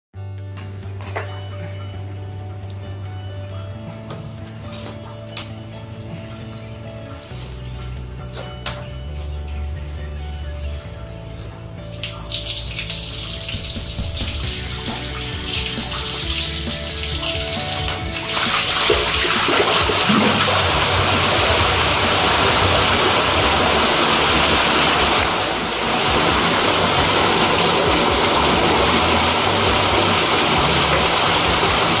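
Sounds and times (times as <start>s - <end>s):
water gushing from pipe: 11.9s - 32.0s.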